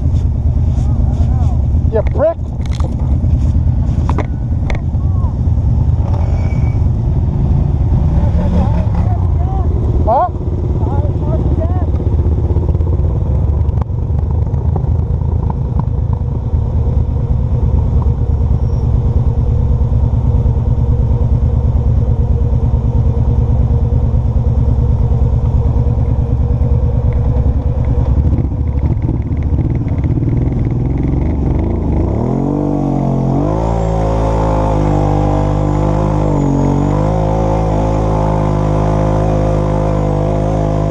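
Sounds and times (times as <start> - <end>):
quad bike engine rumbling: 0.0 - 40.9.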